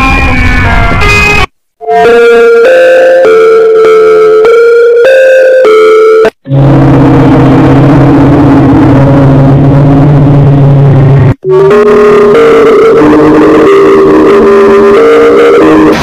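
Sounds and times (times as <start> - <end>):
distorted melody of held notes: 0.0 - 16.0
harsh low droning tone: 6.4 - 16.0.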